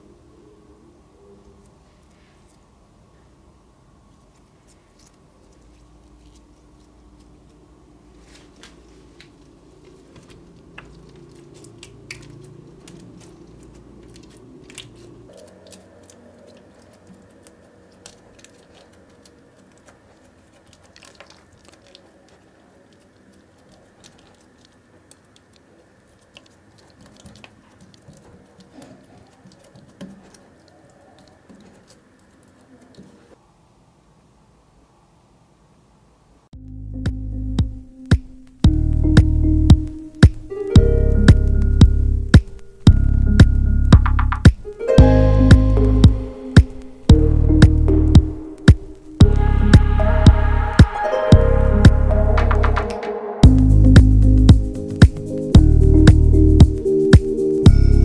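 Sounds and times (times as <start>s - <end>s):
slime squishing and crackling: 8.4s - 33.3s.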